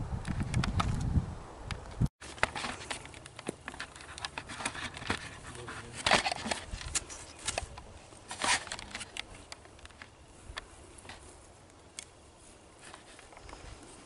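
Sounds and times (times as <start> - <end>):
crackling and rustling: 1.7 - 14.0.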